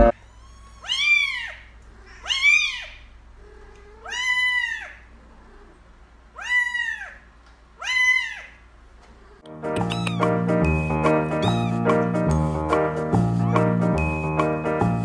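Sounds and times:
cat meowing: 0:00.0 - 0:05.7, 0:06.3 - 0:08.6, 0:09.8 - 0:10.4, 0:11.4 - 0:11.8.

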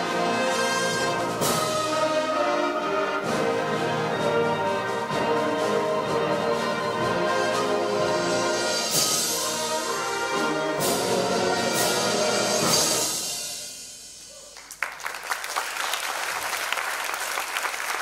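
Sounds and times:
band playing brass fanfare: 0:00.0 - 0:13.9
audience applause: 0:14.6 - 0:18.0.

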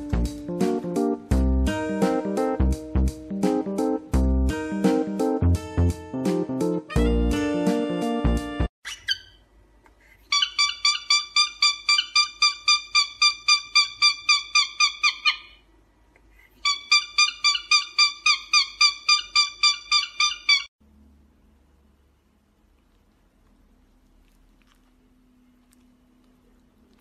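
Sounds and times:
cockatiel chirping rapidly: 0:08.8 - 0:09.4, 0:10.3 - 0:15.6, 0:16.6 - 0:20.7.

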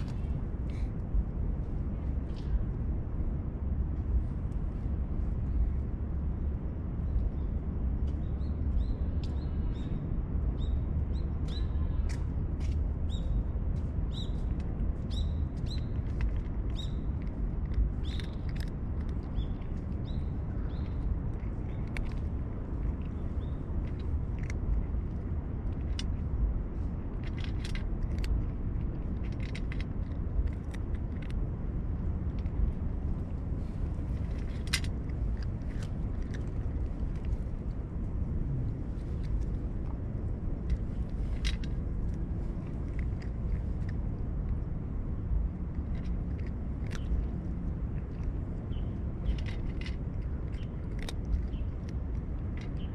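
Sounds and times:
low background rumble: 0:00.0 - 0:52.9
cat crunching dry kibble: 0:15.6 - 0:52.9.

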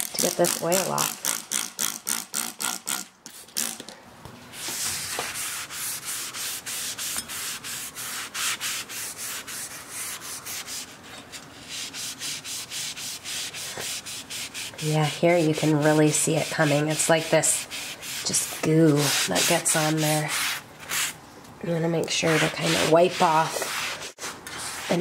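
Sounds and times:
scouring pad scrubbing metal: 0:11.6 - 0:20.6, 0:22.1 - 0:24.2.

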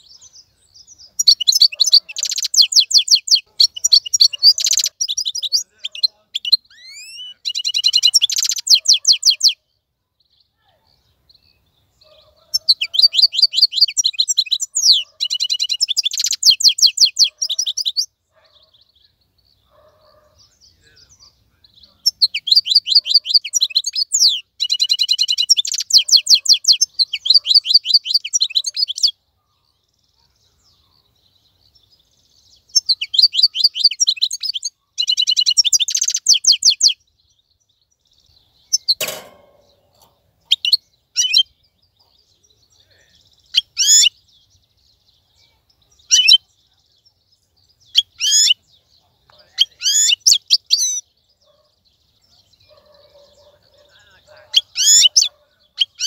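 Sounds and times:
finch twittering song: 0:00.0 - 0:56.0
sharp click: 0:38.9 - 0:40.1.

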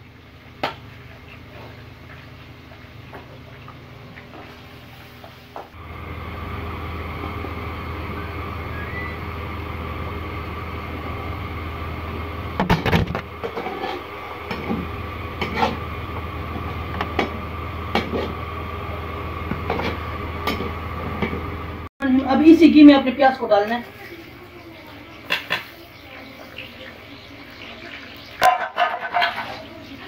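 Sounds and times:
utensils clanking against wok: 0:12.8 - 0:14.8, 0:15.4 - 0:15.8, 0:17.0 - 0:18.4, 0:25.1 - 0:26.9, 0:28.0 - 0:30.0.

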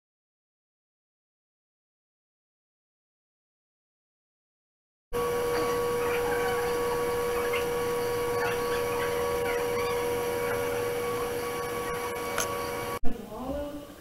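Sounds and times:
steady machine hum: 0:05.2 - 0:13.0.

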